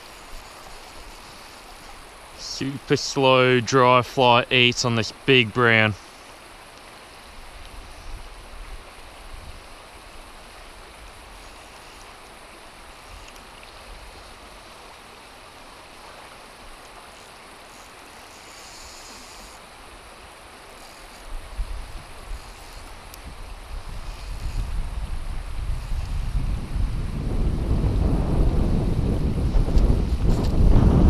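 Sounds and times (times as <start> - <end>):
river running over stones: 0.0 - 27.2
wind buffeting microphone: 21.3 - 31.0.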